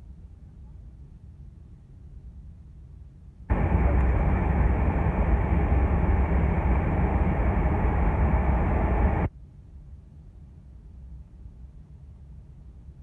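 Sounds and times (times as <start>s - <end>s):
aircraft engines and airflow roaring: 3.5s - 9.3s
low rumble: 3.5s - 9.3s.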